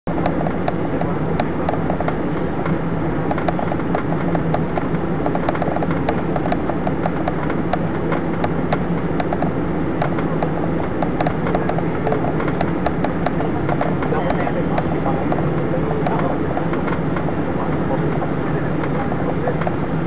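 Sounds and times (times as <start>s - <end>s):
airliner cabin rushing noise: 0.1s - 20.0s
low even hum: 0.1s - 20.0s
small clicks and ticks: 1.4s - 15.4s.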